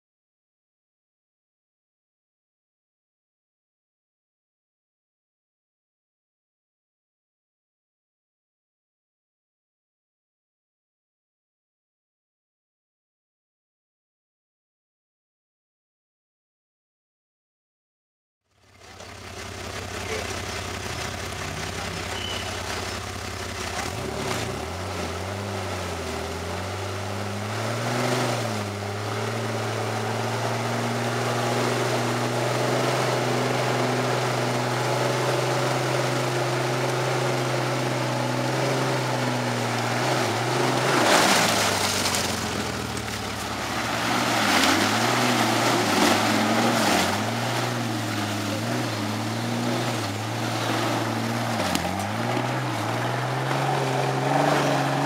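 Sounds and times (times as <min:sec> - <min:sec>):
engine revving: 0:18.7 - 0:55.0
wheels churning mud: 0:18.7 - 0:55.0.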